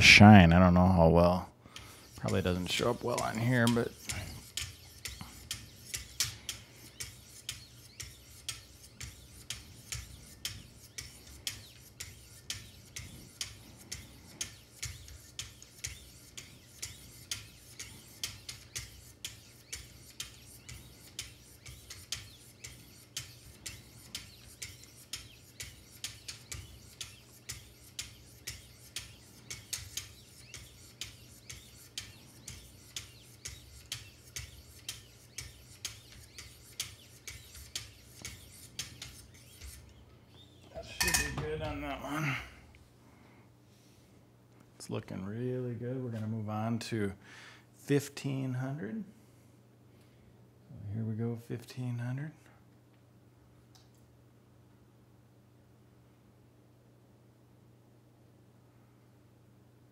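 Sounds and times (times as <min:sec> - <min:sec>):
sharpening paddle scraping knife blade: 0:01.8 - 0:40.0, 0:40.7 - 0:41.8.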